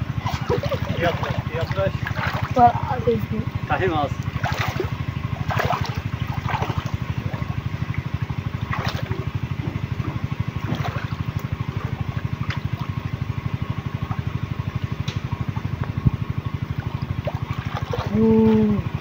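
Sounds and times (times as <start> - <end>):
small engine running: 0.0 - 19.0
hands splashing in muddy water: 0.2 - 2.6, 4.3 - 7.5, 8.6 - 10.0, 16.7 - 19.0.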